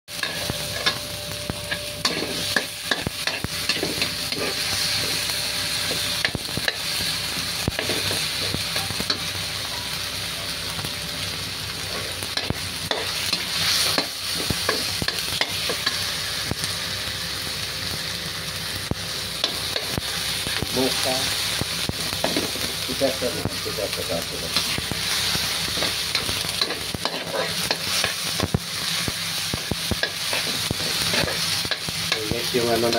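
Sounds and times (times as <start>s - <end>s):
spatula scraping a wok: 0.1s - 9.4s, 11.8s - 16.4s, 24.5s - 32.9s
vegetables sizzling in hot oil: 0.1s - 32.9s.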